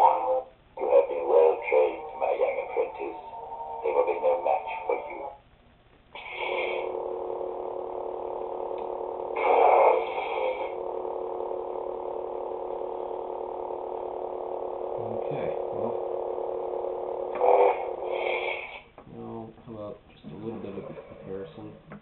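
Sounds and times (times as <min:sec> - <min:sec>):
steady electric hum: 0:00.0 - 0:22.0
lightsaber ignition sound: 0:06.1 - 0:07.0, 0:08.7 - 0:10.8.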